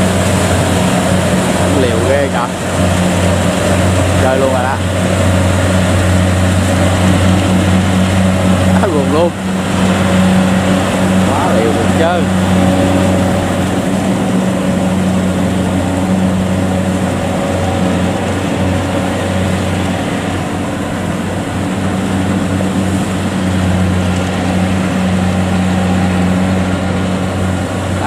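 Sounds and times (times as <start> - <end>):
combine harvester diesel engine: 0.0 - 28.0.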